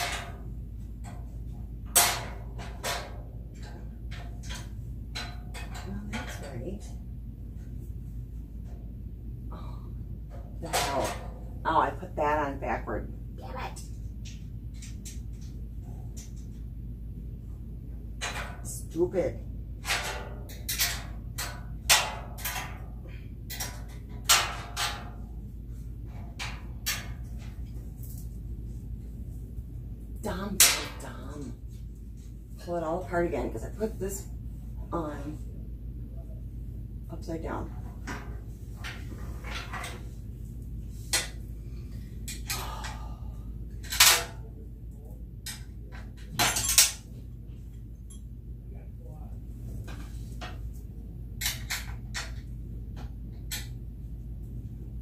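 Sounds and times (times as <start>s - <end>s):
metal mesh parts clanking: 0.0s - 6.8s, 19.8s - 25.3s, 43.8s - 44.5s, 45.4s - 47.1s.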